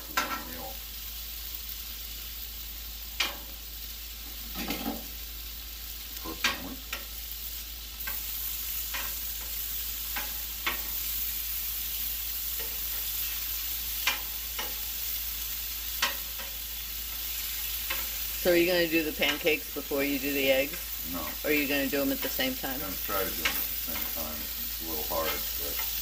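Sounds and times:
food sizzling on griddle: 0:00.0 - 0:26.0
utensil clicking on steel griddle: 0:03.2 - 0:03.5, 0:08.9 - 0:11.0, 0:14.0 - 0:14.8, 0:16.0 - 0:17.2, 0:17.8 - 0:18.2.

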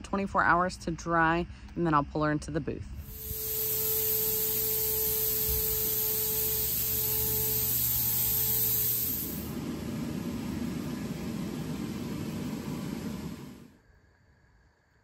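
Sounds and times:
faint steady hum: 0:00.0 - 0:15.0
spray equipment hissing: 0:03.0 - 0:09.5.

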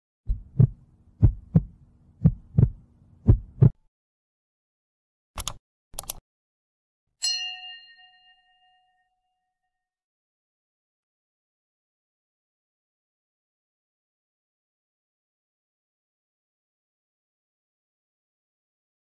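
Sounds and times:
low hum: 0:00.3 - 0:03.7
heartbeat sound effect: 0:00.3 - 0:03.8
short clicks: 0:05.4 - 0:06.2
notification bell ding: 0:07.2 - 0:09.4.

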